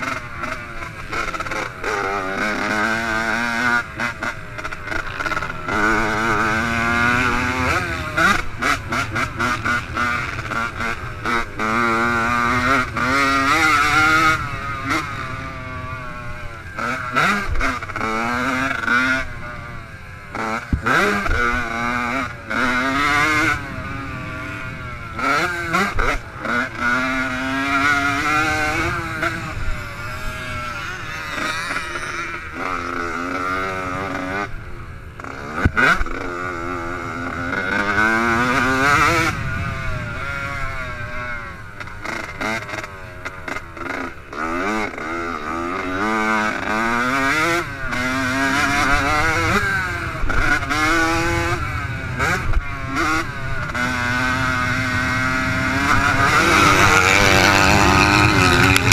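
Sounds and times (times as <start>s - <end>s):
dirt bike engine revving: 0.0s - 58.9s.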